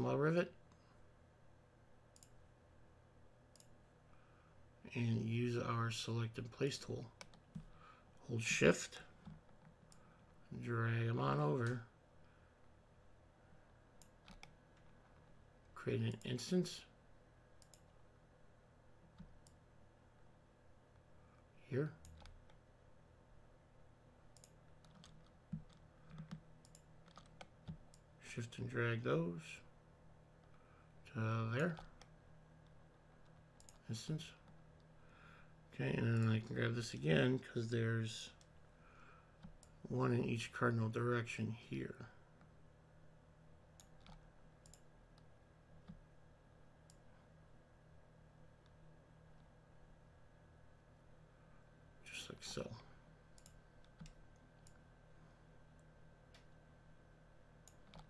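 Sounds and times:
low steady hum: 0:00.0 - 0:58.0
computer mouse clicks: 0:02.1 - 0:02.4, 0:03.5 - 0:03.8, 0:14.0 - 0:15.2, 0:17.6 - 0:18.0, 0:19.1 - 0:19.6, 0:22.0 - 0:22.6, 0:24.3 - 0:28.1, 0:31.5 - 0:33.8, 0:43.8 - 0:46.0, 0:53.3 - 0:54.8, 0:57.6 - 0:58.0.

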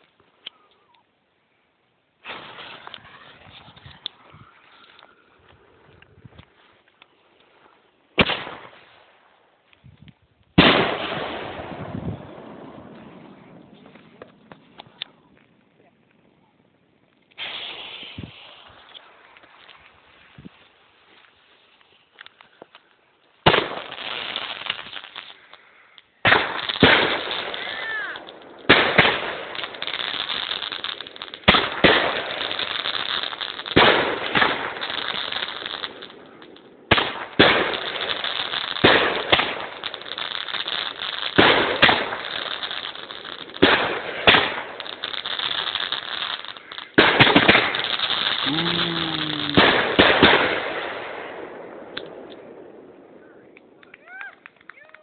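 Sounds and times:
firework shells bursting: 0:23.5 - 0:52.6
dense crackling: 0:24.6 - 0:52.5.

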